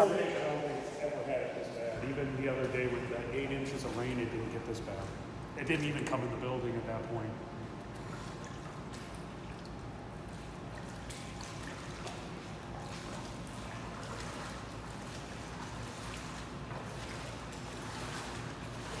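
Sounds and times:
people wading through floodwater: 11.2s - 19.0s.

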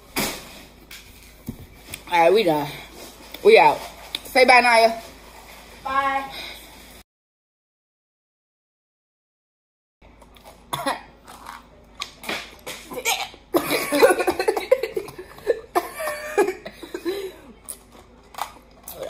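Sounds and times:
women coughing: 10.7s - 11.1s, 12.9s - 17.6s
women laughing: 13.6s - 17.3s.

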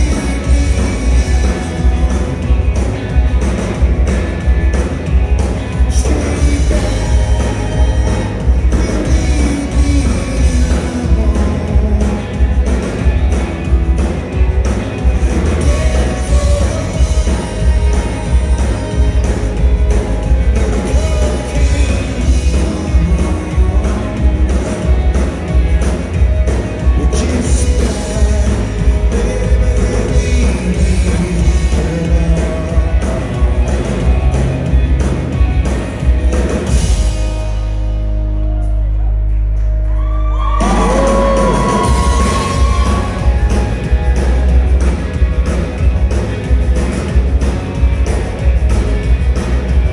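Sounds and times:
man singing into microphone: 0.0s - 1.9s, 5.9s - 12.6s, 15.6s - 19.2s, 20.5s - 24.4s, 26.9s - 33.6s
drum kit beating: 0.0s - 38.0s, 39.9s - 49.9s
electric guitars and bass: 0.0s - 49.9s
live rock band playing: 0.0s - 49.9s.

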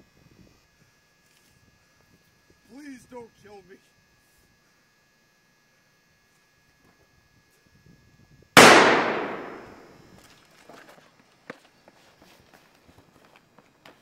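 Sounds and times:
gunshot: 8.6s - 9.9s.

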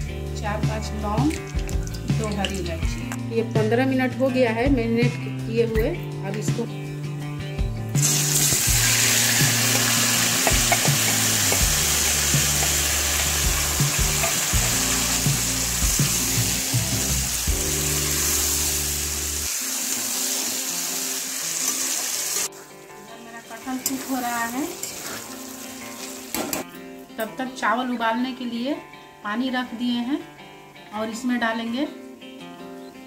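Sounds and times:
food sizzling in hot oil: 8.0s - 22.9s, 23.5s - 26.6s
spatula scraping pan: 24.7s - 26.1s.

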